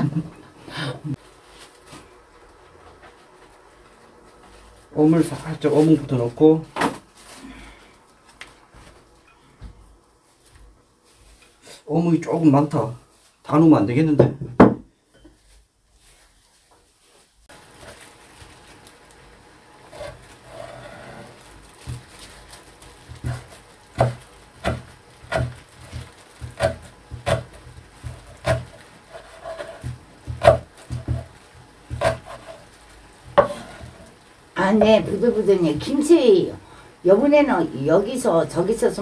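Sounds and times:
knife chopping on wooden board: 0:23.1 - 0:32.6, 0:33.3 - 0:34.0.

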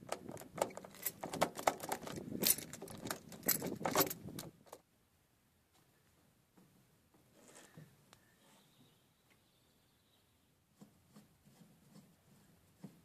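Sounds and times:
keyring jangling: 0:00.9 - 0:04.2.

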